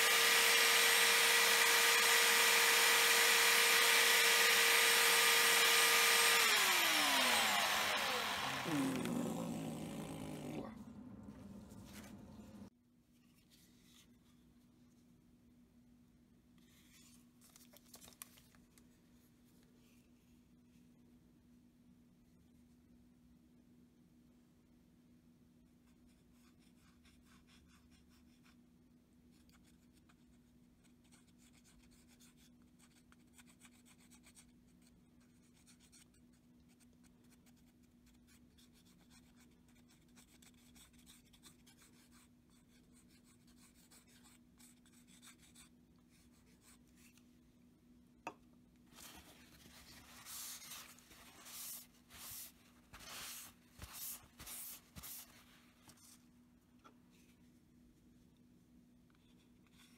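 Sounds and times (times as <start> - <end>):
steady low hum: 7.4 - 12.7
knife rustling on paper: 48.9 - 56.2
plastic nozzle scratching wood: 50.3 - 55.2.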